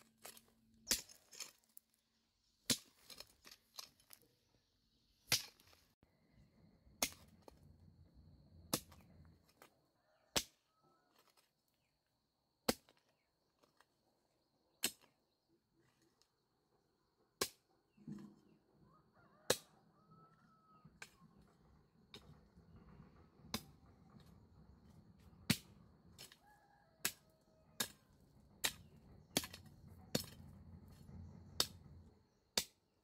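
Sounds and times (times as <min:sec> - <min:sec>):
hoe chopping into dry soil: 0:08.7 - 0:09.6, 0:27.0 - 0:31.0.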